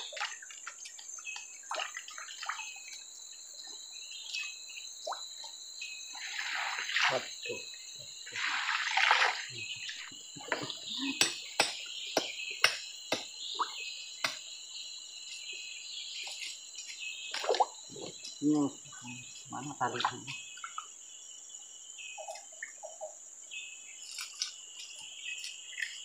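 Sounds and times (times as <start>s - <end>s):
water splashing: 0.0s - 3.0s, 6.2s - 7.6s, 8.3s - 11.0s
high insect drone: 0.0s - 26.0s
sharp knocks on stone: 11.2s - 13.3s.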